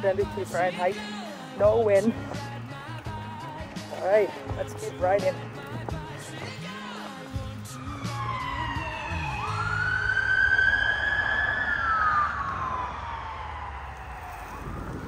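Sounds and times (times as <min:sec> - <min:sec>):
siren wailing: 0:06.9 - 0:15.0.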